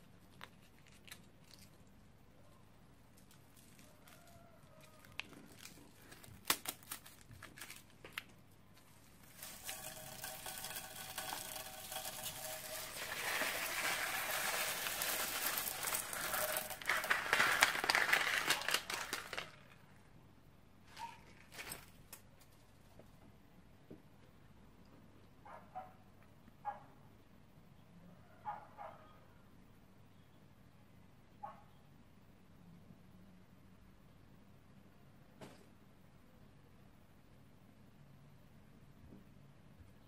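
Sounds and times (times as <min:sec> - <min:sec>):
plastic piping bag crinkling: 0:04.9 - 0:20.0
beads pouring onto slime: 0:09.1 - 0:19.8.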